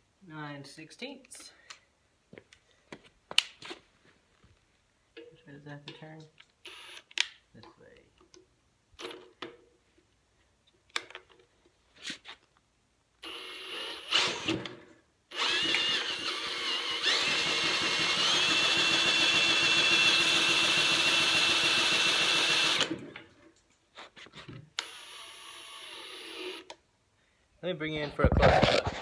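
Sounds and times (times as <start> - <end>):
cordless drill whining: 6.7 - 7.1, 13.2 - 23.2, 24.8 - 26.7
drill clicks: 13.2 - 23.1, 24.8 - 26.8.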